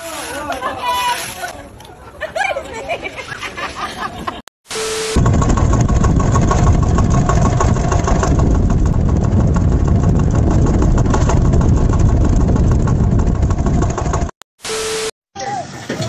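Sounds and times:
diesel engine running: 0:04.8 - 0:14.4.

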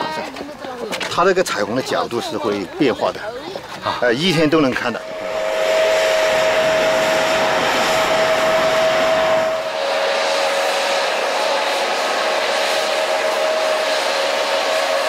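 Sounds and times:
steam locomotive venting steam: 0:04.0 - 0:15.0.

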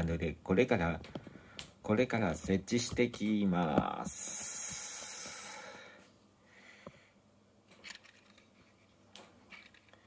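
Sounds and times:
high hiss: 0:04.0 - 0:06.0.

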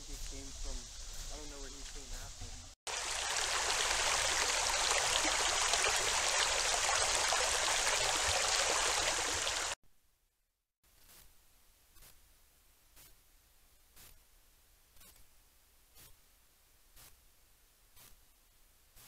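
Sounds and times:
creek rushing over stones: 0:02.9 - 0:09.8.

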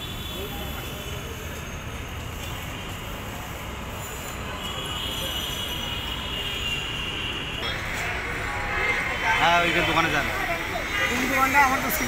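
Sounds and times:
street background noise: 0:00.0 - 0:12.0.

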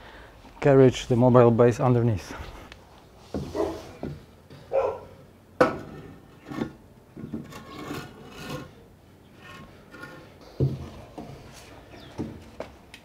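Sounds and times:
wooden boards scraping: 0:05.6 - 0:12.8.

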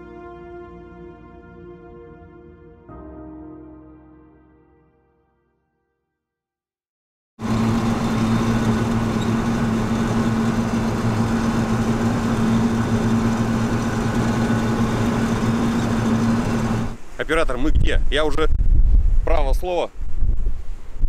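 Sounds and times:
vehicle engine humming: 0:07.4 - 0:17.1
road or wind noise: 0:07.4 - 0:21.0.

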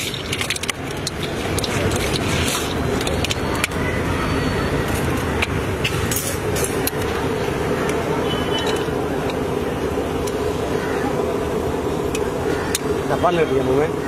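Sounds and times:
utensils clinking: 0:00.0 - 0:03.8, 0:07.8 - 0:09.4
traffic-like background noise: 0:00.0 - 0:14.0.

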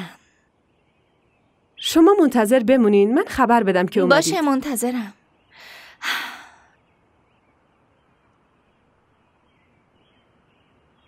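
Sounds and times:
woman sighing: 0:05.6 - 0:06.6
woman breathing in: 0:05.6 - 0:06.7.

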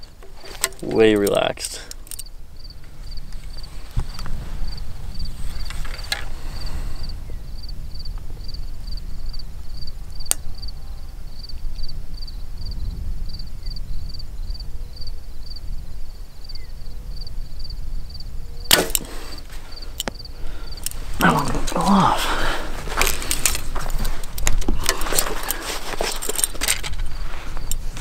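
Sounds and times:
insect chirping: 0:00.0 - 0:28.0
low rumble of wind: 0:00.0 - 0:28.0
bow string snap: 0:18.7 - 0:19.4.

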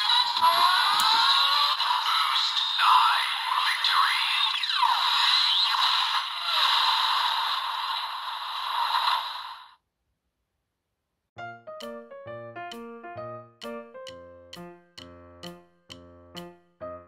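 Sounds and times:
electronic whooshing toy effects: 0:00.0 - 0:09.7
piano-like music: 0:11.4 - 0:17.0.

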